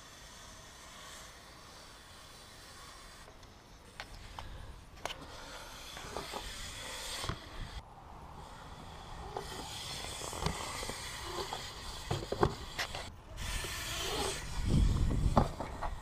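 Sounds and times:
bike tyres rolling on concrete: 0.0s - 16.0s
low rumble of bike on bowl wall: 4.1s - 16.0s.

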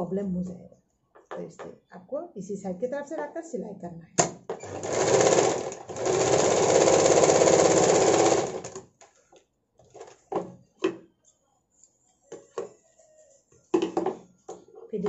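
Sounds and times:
sewing machine stitching: 4.5s - 8.9s.

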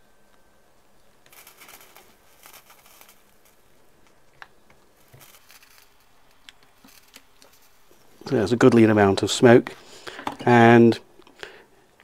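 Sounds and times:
solder sizzling and crackling: 0.3s - 9.9s.

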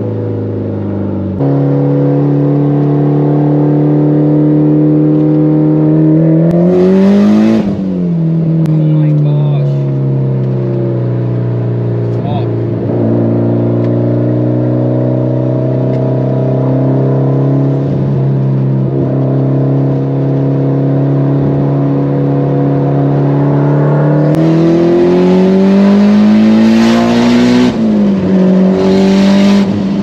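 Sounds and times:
car engine droning and revving: 0.0s - 30.0s.

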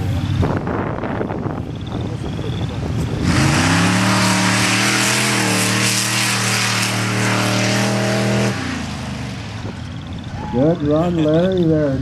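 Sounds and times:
trucks racing at full throttle: 0.0s - 12.0s
spinning tyres throwing sand: 3.2s - 10.0s.

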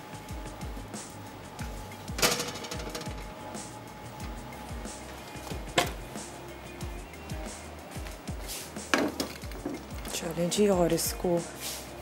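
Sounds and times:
background music with steady beat: 0.0s - 12.0s
metal pan clanking on oven rack: 2.2s - 3.3s.

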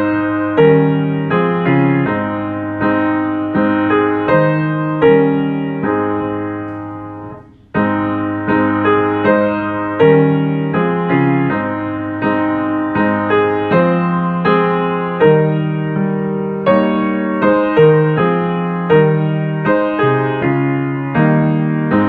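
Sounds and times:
piano playing block chords: 0.0s - 22.0s.

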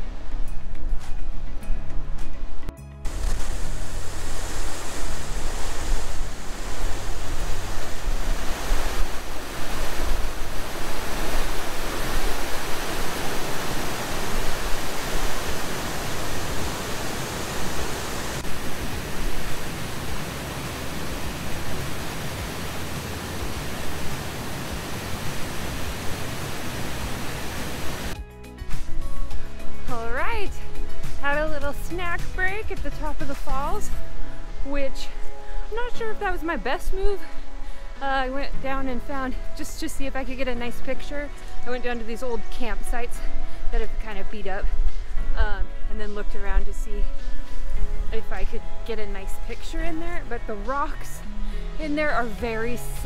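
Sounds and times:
waterfall rushing: 3.1s - 28.2s.

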